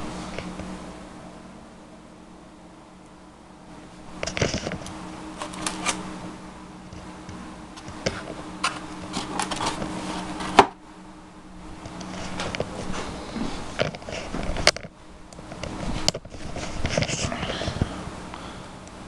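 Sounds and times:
steady low hum: 0.0s - 19.0s
handling rustling and clicks: 4.2s - 6.0s, 7.8s - 10.6s.

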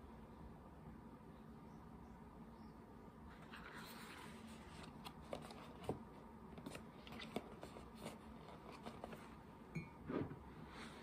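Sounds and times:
book pages turning: 3.3s - 9.4s
paper rustling: 3.3s - 9.4s.

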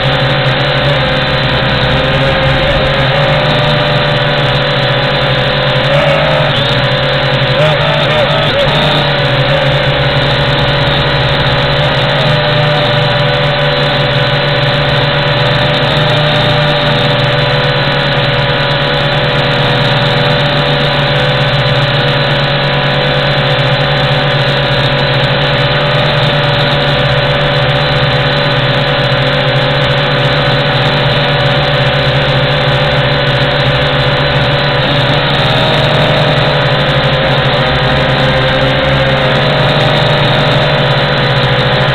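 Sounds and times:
toy drone propellers buzzing: 0.0s - 22.1s.

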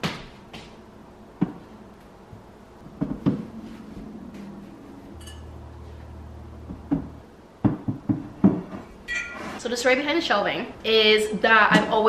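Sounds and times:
objects knocking on wooden shelf: 3.0s - 3.6s, 6.6s - 8.9s
ceramic clinks: 5.2s - 5.6s.

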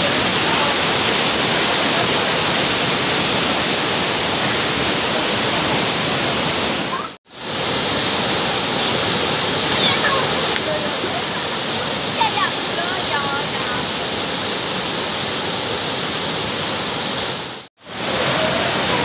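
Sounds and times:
floodwater rushing: 0.0s - 19.0s.

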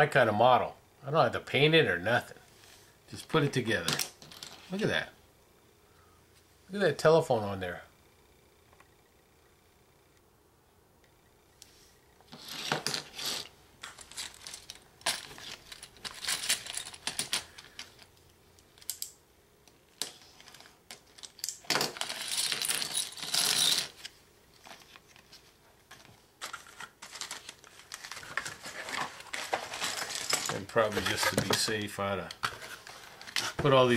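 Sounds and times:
plastic pieces clattering: 12.3s - 18.0s, 20.0s - 24.1s, 26.4s - 31.7s.

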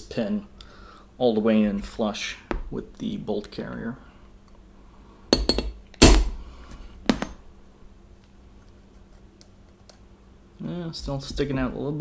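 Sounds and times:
hammer tapping a metal punch: 5.3s - 6.3s.

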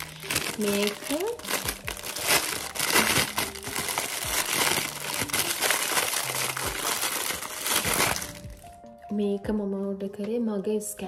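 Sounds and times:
plastic packaging crinkling: 0.0s - 8.8s.

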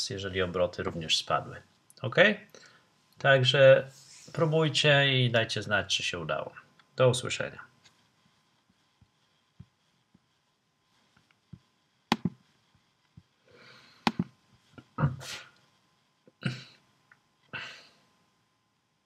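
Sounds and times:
computer mouse double-clicking: 12.1s - 12.4s.

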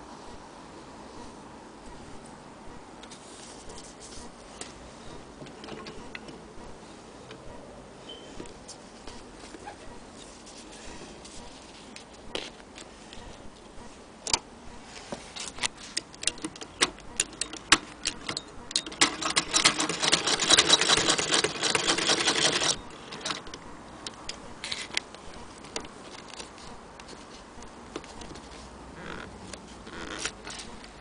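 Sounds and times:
hand-crank sewing machine clicking: 16.0s - 23.6s.

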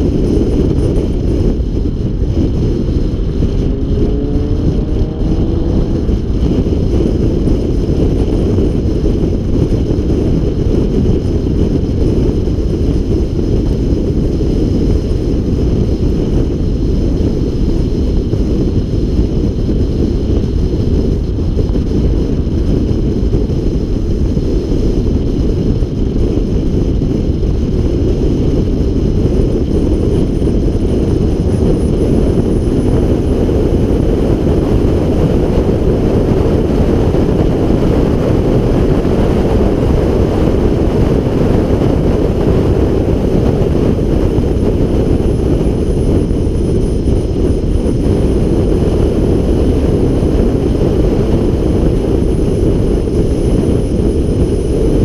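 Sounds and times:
car engine: 0.0s - 55.0s
road noise: 0.0s - 55.0s
wind buffeting camera: 0.0s - 55.0s
engine rising note: 3.0s - 6.9s.

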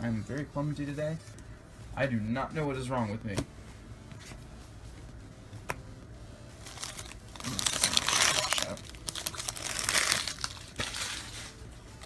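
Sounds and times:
foil wrappers crinkling: 6.6s - 11.6s.

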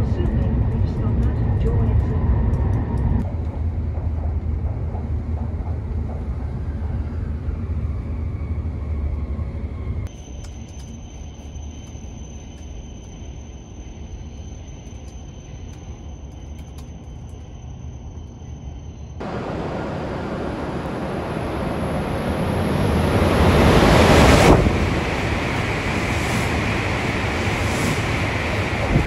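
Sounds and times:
hum with high whine: 7.3s - 29.0s
train rushing past: 19.2s - 29.0s.

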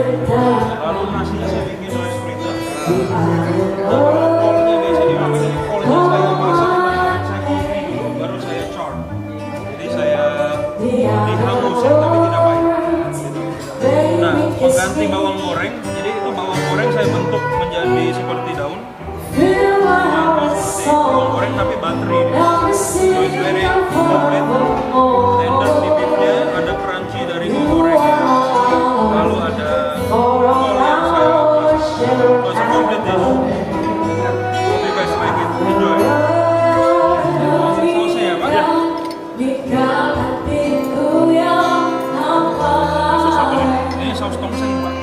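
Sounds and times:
held bass notes: 0.0s - 45.0s
song with singing: 0.0s - 45.0s.

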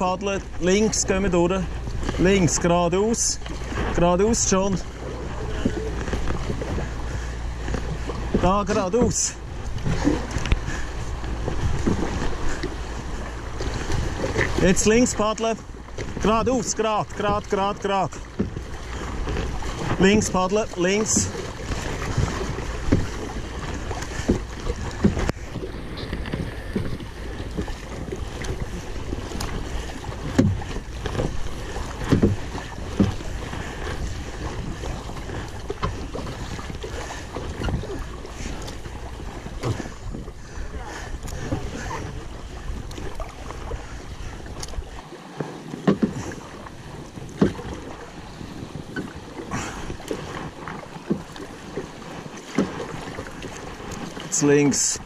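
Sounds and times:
paddle blades splashing and knocking: 0.0s - 55.0s
rushing river water: 0.0s - 55.0s
wind rumble on microphone: 3.4s - 16.3s.

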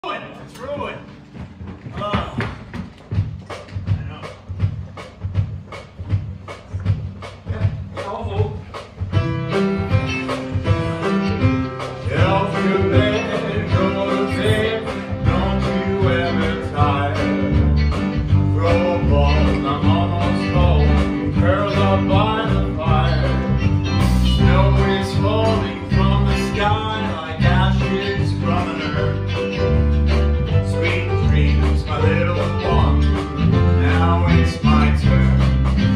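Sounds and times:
country band accompaniment: 0.0s - 35.9s
man singing: 12.0s - 29.4s, 30.4s - 35.9s.

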